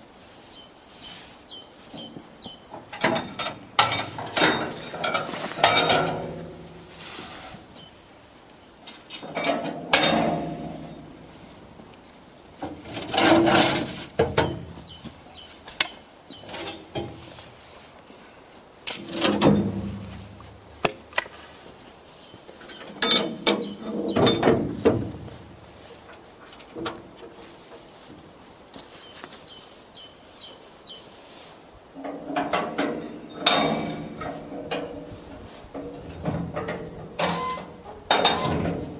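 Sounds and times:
metal skip wagons clanking: 1.5s - 8.2s, 8.8s - 11.8s, 12.5s - 17.8s, 18.8s - 28.2s, 31.9s - 38.9s.

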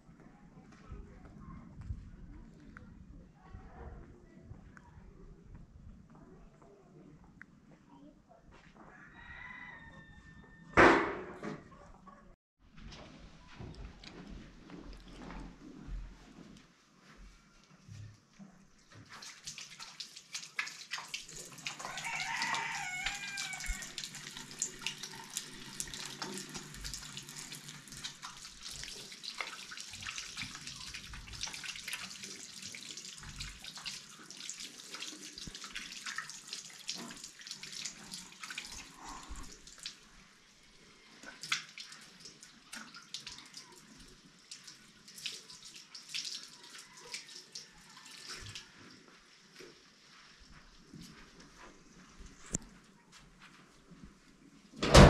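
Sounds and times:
water running and splashing: 18.8s - 52.5s.

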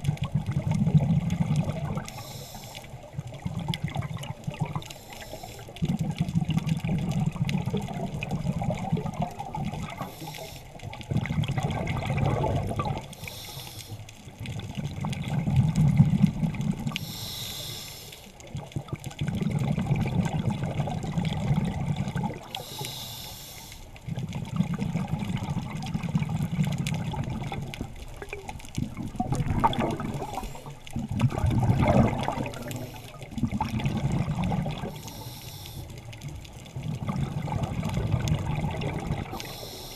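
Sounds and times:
exhaled bubbles rumbling underwater: 0.0s - 39.9s
scuba regulator hissing inhalations: 2.1s - 3.0s, 4.9s - 5.8s, 9.9s - 10.8s, 13.1s - 14.0s, 16.9s - 18.4s, 22.5s - 23.9s, 32.5s - 33.3s, 34.9s - 36.0s, 39.4s - 39.9s.

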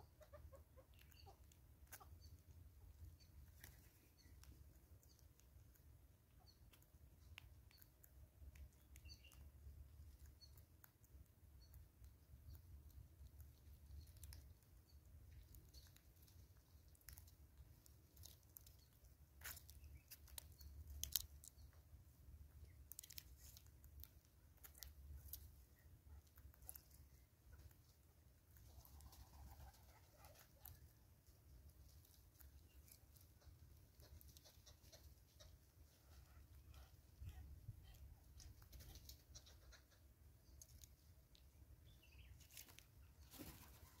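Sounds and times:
bird bill pecking on wood: 0.1s - 30.9s.

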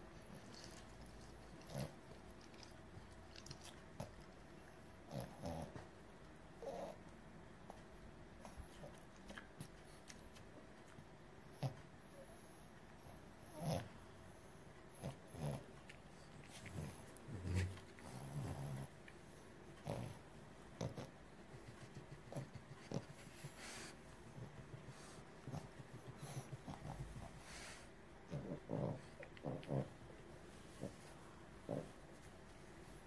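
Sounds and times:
dog breathing: 11.6s - 30.0s.

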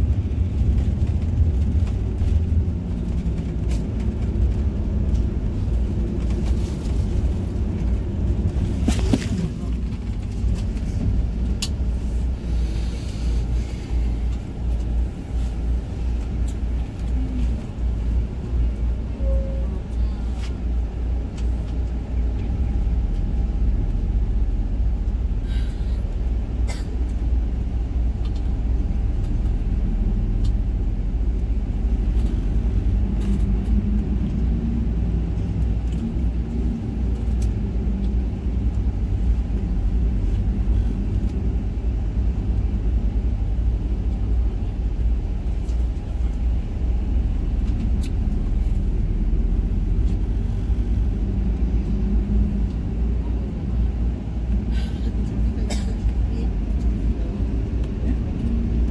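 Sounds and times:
bus engine and road rumble: 0.0s - 58.9s.

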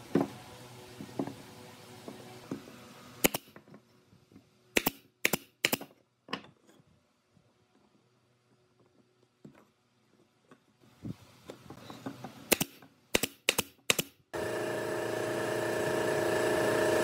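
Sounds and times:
nail gun firing into wood: 3.2s - 3.6s, 4.8s - 5.9s, 12.5s - 14.2s.

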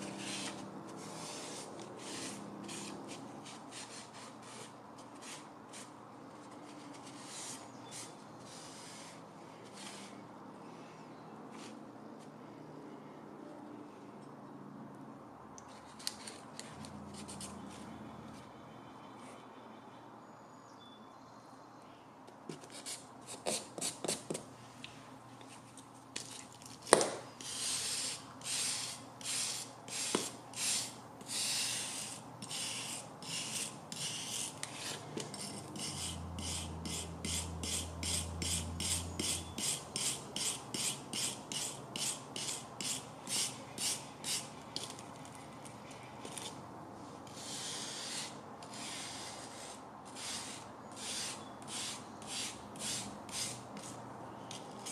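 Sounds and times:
sanding stick rasping on metal: 27.4s - 44.9s, 47.3s - 54.9s.

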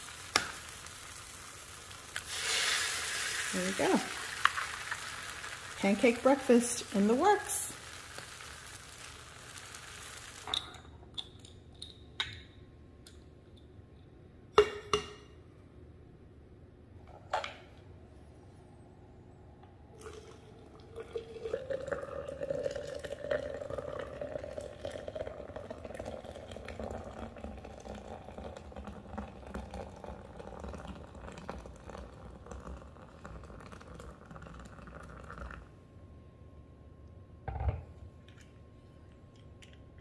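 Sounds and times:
hot water pouring into glass: 0.0s - 10.6s, 20.0s - 35.7s.

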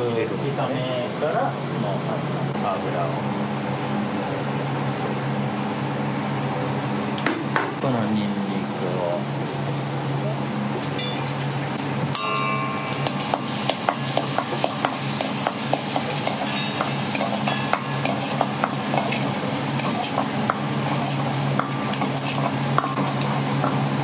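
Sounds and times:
garlic sizzling in hot oil: 11.2s - 24.0s
metal ladle scraping a wok: 12.7s - 23.8s.

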